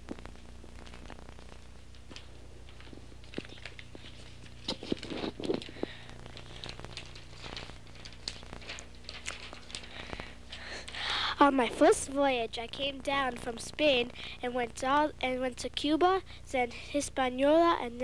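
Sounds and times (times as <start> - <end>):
paper map crinkling and rustling: 0.1 - 12.0.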